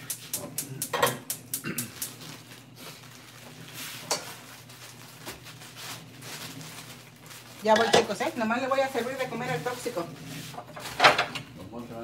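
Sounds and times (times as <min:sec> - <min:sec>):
steady low hum: 0:00.0 - 0:12.0
cookware clicking and clinking: 0:07.7 - 0:08.2, 0:10.8 - 0:11.5.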